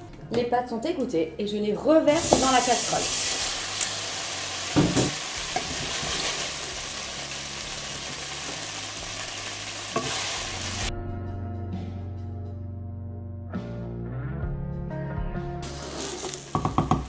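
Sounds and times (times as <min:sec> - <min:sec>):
pasta sizzling in a saucepan: 0:02.2 - 0:10.9, 0:15.6 - 0:17.0
wooden spoon knocking a pot: 0:04.8 - 0:05.2, 0:16.5 - 0:17.0.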